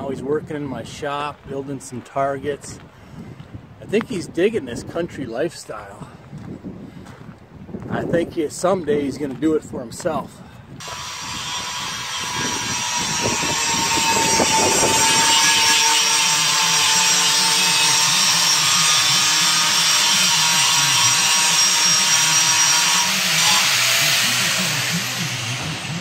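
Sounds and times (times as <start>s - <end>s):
angle grinder grinding steel: 10.8s - 26.0s.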